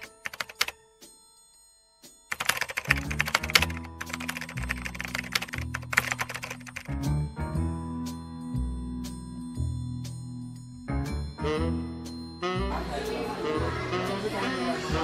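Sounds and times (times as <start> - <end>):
keyboard typing clicks: 0.0 - 0.7, 2.3 - 6.9
background music with bass: 6.9 - 15.0.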